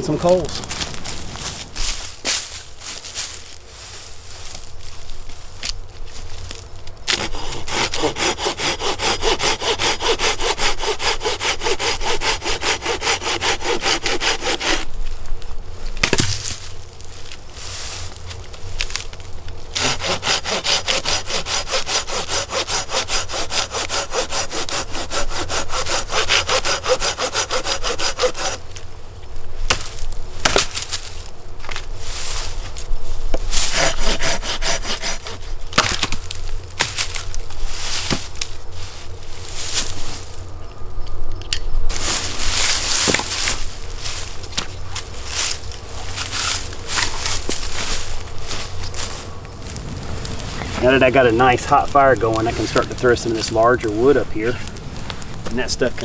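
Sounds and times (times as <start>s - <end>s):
hand saw cutting wood: 7.1s - 14.9s, 19.8s - 28.6s, 33.5s - 36.1s, 50.8s - 54.6s.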